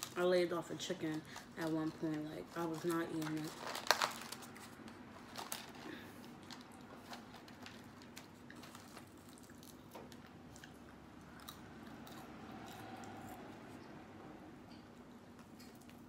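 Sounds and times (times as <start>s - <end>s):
soft chewing with crunches: 4.0s - 16.0s.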